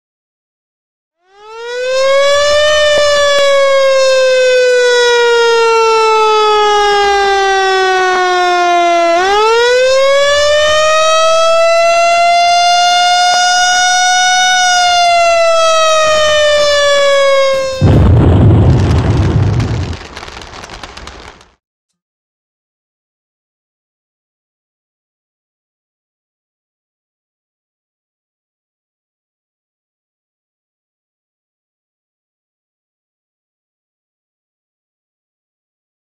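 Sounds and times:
siren wailing: 1.2 - 20.8.

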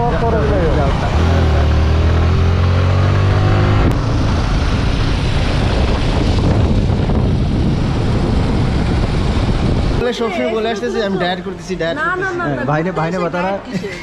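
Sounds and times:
motorcycle engine revving: 0.0 - 10.1
wind and road noise: 0.0 - 14.0.

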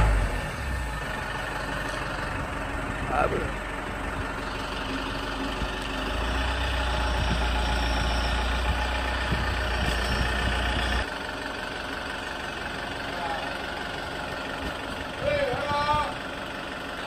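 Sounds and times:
deep low rumble: 0.0 - 11.1
minibus engine idling: 0.0 - 17.0.

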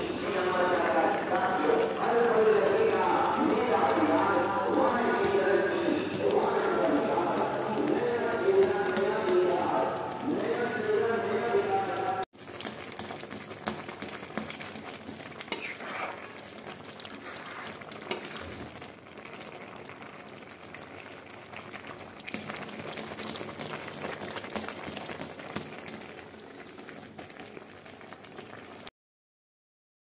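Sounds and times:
thick food bubbling in pan: 0.0 - 28.9
spatula scraping pan: 15.4 - 16.5, 17.1 - 18.8.

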